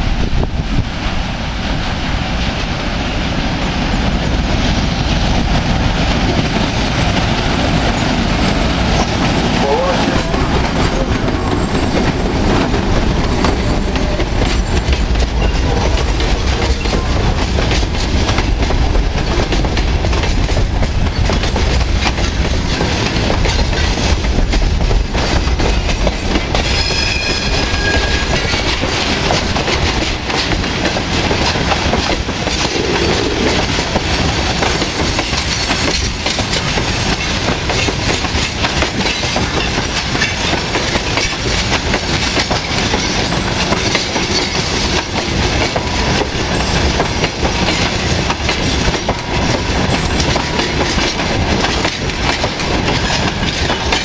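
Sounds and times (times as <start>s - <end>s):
train wheels clattering on rails: 3.6s - 54.0s
high squeal: 26.6s - 28.4s.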